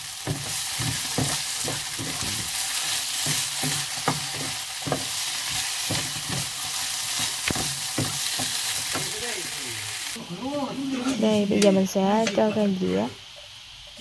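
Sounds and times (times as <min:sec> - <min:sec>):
potatoes sizzling in a pan: 0:00.0 - 0:14.0
spatula scraping and tapping pan: 0:00.2 - 0:09.2.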